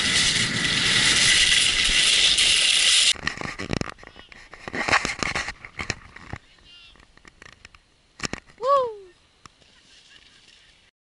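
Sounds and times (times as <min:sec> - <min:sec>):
skis scraping over snow: 0:00.0 - 0:03.2
faint scrapes and clicks: 0:01.4 - 0:08.6.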